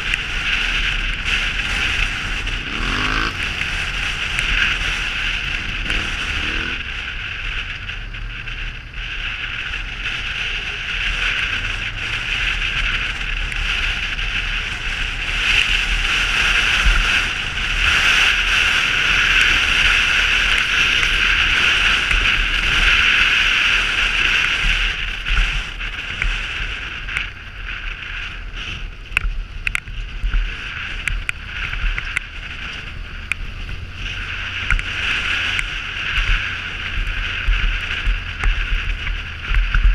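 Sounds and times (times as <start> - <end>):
atv engine rumble: 0.0 - 39.9
wind noise on microphone: 0.0 - 39.9
sharp ticks: 29.1 - 29.9.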